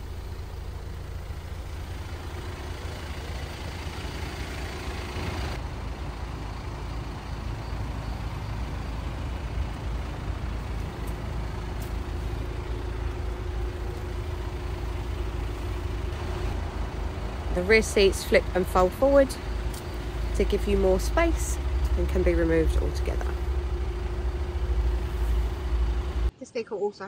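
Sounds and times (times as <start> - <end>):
diesel engine idling: 0.0 - 26.3.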